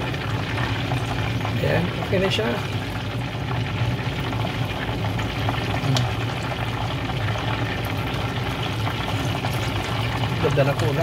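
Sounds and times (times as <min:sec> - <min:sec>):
oil bubbling and sizzling: 0:00.0 - 0:11.0.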